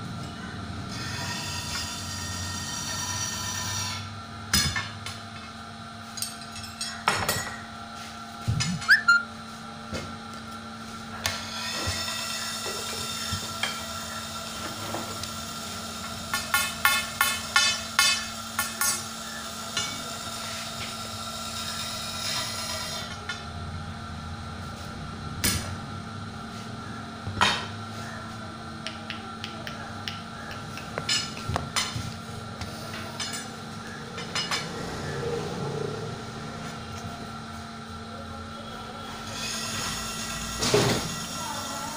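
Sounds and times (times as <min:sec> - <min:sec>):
steady hum: 0:04.0 - 0:11.2, 0:21.1 - 0:41.9.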